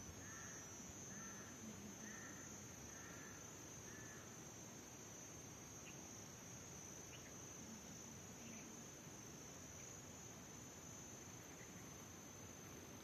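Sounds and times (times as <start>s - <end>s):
high-pitched insect trill: 0.0s - 13.0s
faint chirps: 5.8s - 6.1s, 7.0s - 8.9s, 11.1s - 12.2s.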